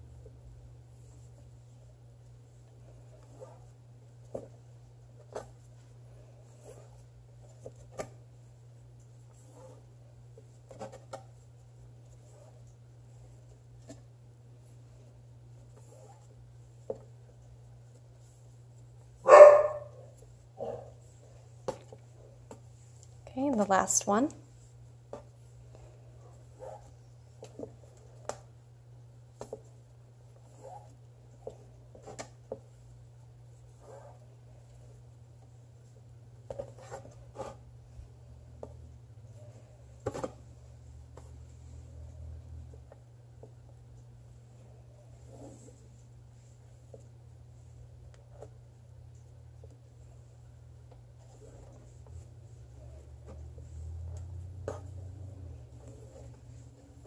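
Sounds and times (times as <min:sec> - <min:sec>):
scratchy brushes: 0:00.8 - 0:13.9, 0:29.4 - 0:37.6, 0:51.1 - 0:57.0
dog barking: 0:19.2 - 0:20.0, 0:20.6 - 0:20.9
cord rustling: 0:48.0 - 0:57.0.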